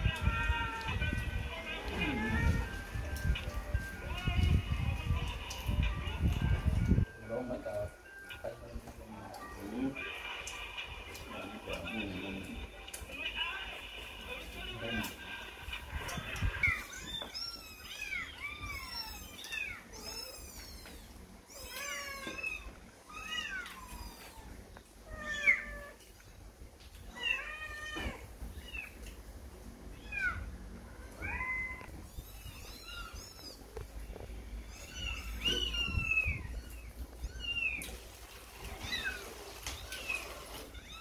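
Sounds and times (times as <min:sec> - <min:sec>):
kittens mewing: 0:00.0 - 0:02.8, 0:29.9 - 0:41.0.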